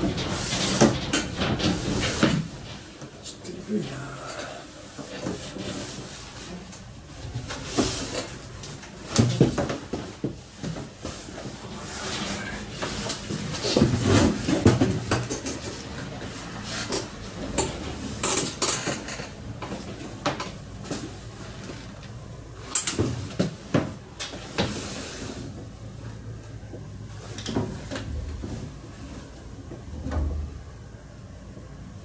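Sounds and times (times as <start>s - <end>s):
metal rails and panels clattering: 0.0s - 3.1s.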